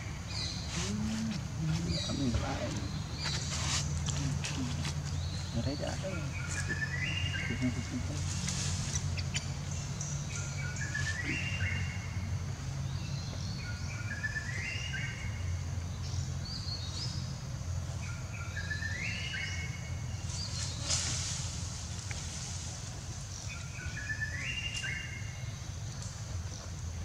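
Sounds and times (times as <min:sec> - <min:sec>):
songbird singing: 0:00.0 - 0:27.0.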